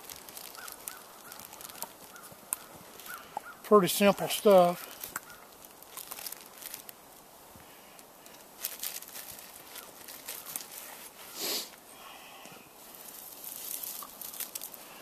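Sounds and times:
rustling of cloth and plastic bag: 0:00.0 - 0:11.8, 0:12.7 - 0:15.0.

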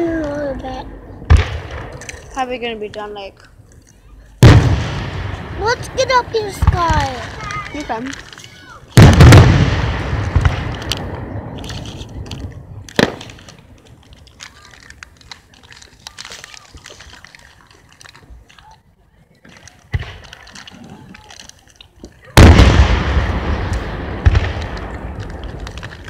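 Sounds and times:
firework shell rumbling echo: 0:00.0 - 0:03.2, 0:04.4 - 0:18.6, 0:19.4 - 0:26.0
faint firework crackles: 0:00.0 - 0:26.0
sharp firework bang: 0:01.2 - 0:02.0, 0:04.4 - 0:07.1, 0:09.0 - 0:11.6, 0:22.4 - 0:25.0.

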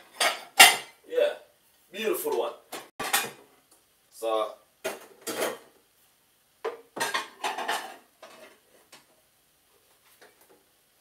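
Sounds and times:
kitchenware clattering: 0:00.0 - 0:01.0, 0:02.3 - 0:03.5, 0:04.8 - 0:05.7, 0:06.6 - 0:08.6
kitchenware clinking: 0:00.0 - 0:01.0, 0:02.3 - 0:03.4, 0:04.8 - 0:05.7, 0:06.7 - 0:08.6.

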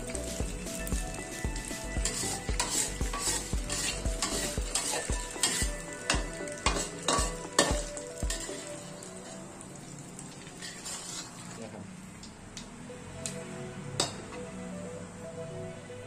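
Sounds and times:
food sizzling in oil: 0:00.0 - 0:11.6
spatula scraping a pan: 0:02.0 - 0:09.4, 0:10.6 - 0:11.6.

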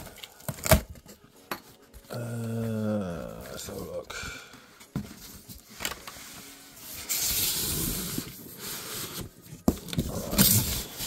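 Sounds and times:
packaging rubbing and scraping: 0:05.1 - 0:11.0
hiss of sliding packaging: 0:05.6 - 0:09.4.

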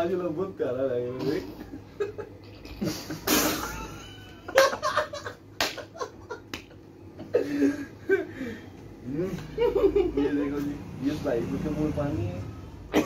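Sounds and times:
men laughing: 0:01.3 - 0:10.8
sharp claps: 0:05.6 - 0:06.8.

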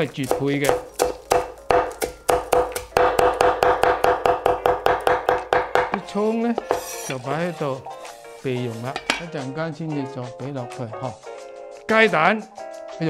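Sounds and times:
knife chopping on wooden board: 0:00.0 - 0:07.4.

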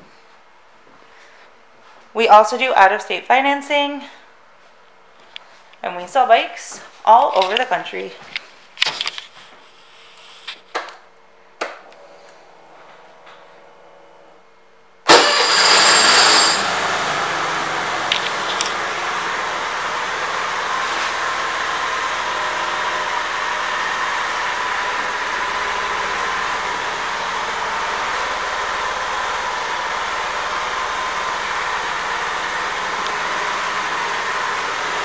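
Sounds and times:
scooter engine starting and idling: 0:15.0 - 0:35.0.

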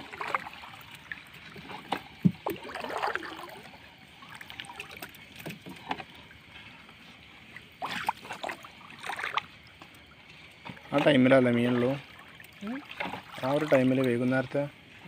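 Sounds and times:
water dripping and splashing: 0:00.0 - 0:15.0.

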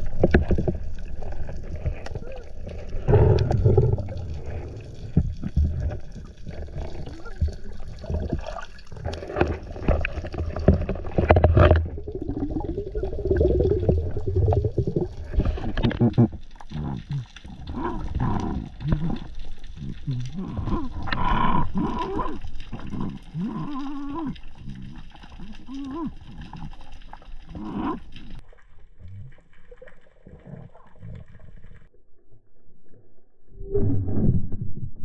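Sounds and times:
underwater knocks and rubs: 0:00.0 - 0:17.1
muffled water sloshing and gurgling: 0:00.0 - 0:35.0.

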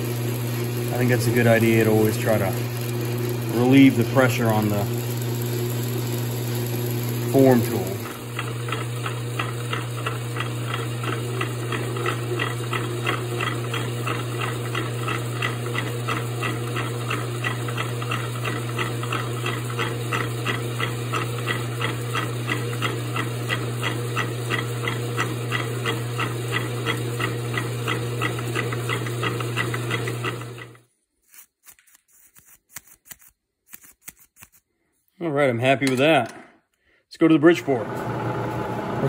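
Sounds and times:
metal lathe humming: 0:00.0 - 0:30.8, 0:37.6 - 0:39.0.

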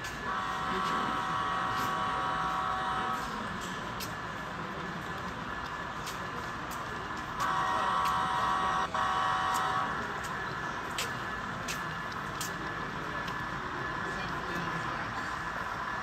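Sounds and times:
model train horn blasts: 0:00.2 - 0:03.5, 0:07.4 - 0:10.2.

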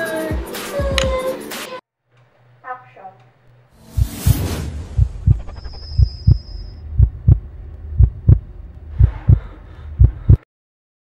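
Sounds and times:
heartbeat thumps: 0:03.9 - 0:10.4.

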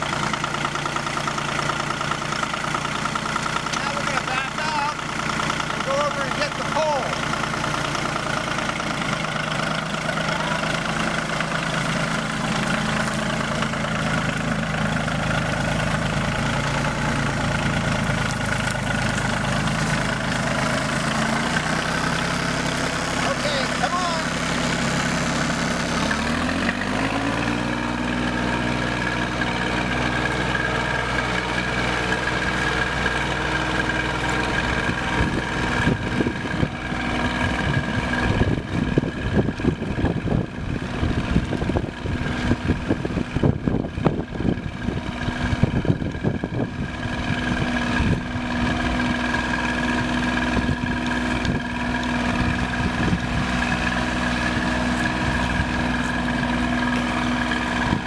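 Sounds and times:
tractor diesel engine running: 0:00.0 - 0:58.0
wind buffeting microphone: 0:34.8 - 0:49.0, 0:50.5 - 0:53.8, 0:57.8 - 0:58.0.

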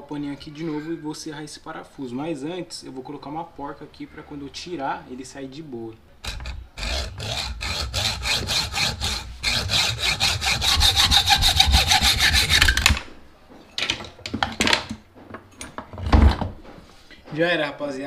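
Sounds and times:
hacksaw cutting steel: 0:06.2 - 0:13.0.

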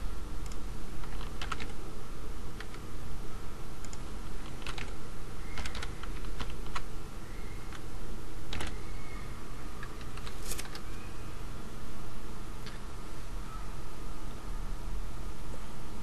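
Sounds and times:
steady low hum: 0:00.0 - 0:16.0
computer keyboard keystrokes: 0:00.4 - 0:01.8, 0:02.6 - 0:02.8, 0:03.8 - 0:06.9, 0:08.5 - 0:08.8, 0:09.8 - 0:10.8.

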